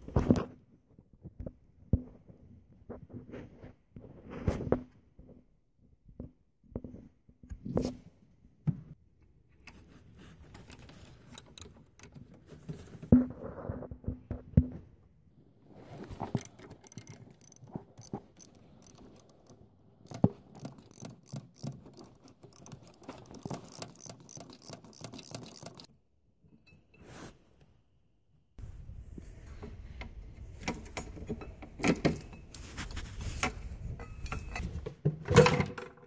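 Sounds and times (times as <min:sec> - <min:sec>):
hand tools clicking and rattling: 0:10.7 - 0:12.2, 0:16.0 - 0:25.9.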